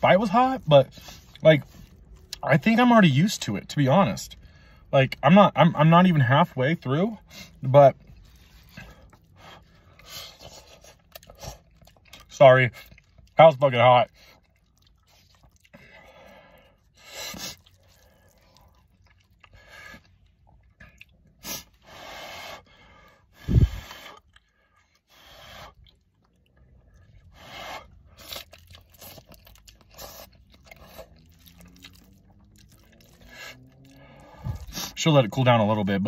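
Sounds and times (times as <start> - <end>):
slurping noodles: 27.2 - 35.0.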